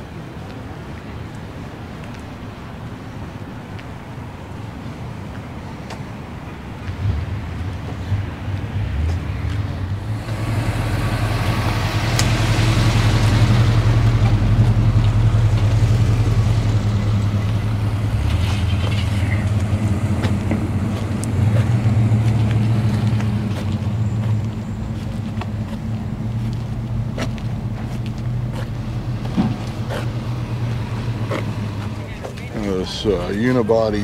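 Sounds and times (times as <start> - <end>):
vehicle engine running at low revs: 6.8 - 34.0.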